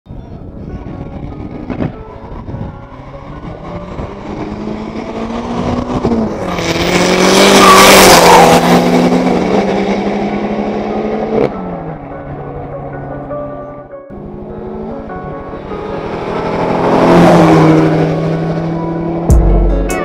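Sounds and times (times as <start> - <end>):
drag racing car accelerating past: 1.1 - 12.7, 14.2 - 19.3
background music: 11.1 - 17.8, 19.2 - 20.0.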